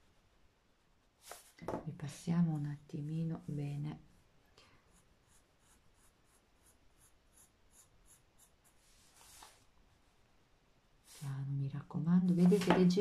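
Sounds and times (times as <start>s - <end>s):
pencil scratching on paper: 4.9s - 9.5s.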